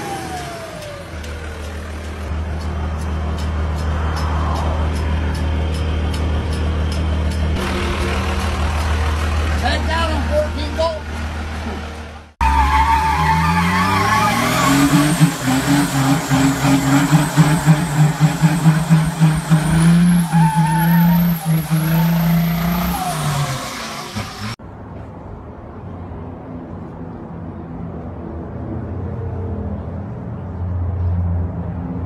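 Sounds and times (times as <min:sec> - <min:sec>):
diesel engine revving: 0:00.0 - 0:24.6
low vehicle rumble: 0:00.0 - 0:25.5.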